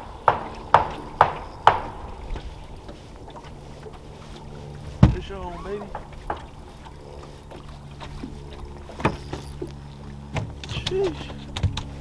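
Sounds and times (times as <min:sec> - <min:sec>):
sharp knocks and clicks: 0:00.0 - 0:02.4, 0:05.0 - 0:06.6, 0:10.3 - 0:11.9
boat motor humming: 0:00.0 - 0:12.0.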